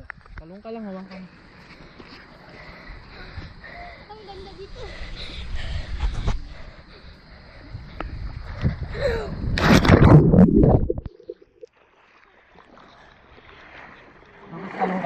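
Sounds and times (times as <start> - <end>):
water splashing and rushing: 9.6 - 15.0.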